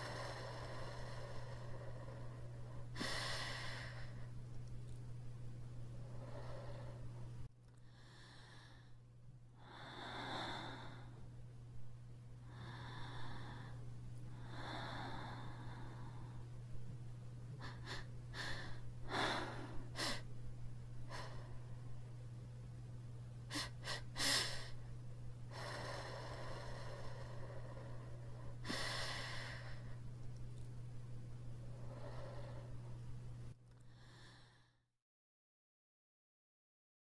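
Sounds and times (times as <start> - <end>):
person breathing: 0.0 - 9.0, 9.6 - 22.1, 23.5 - 34.8
low electrical hum: 0.0 - 34.9.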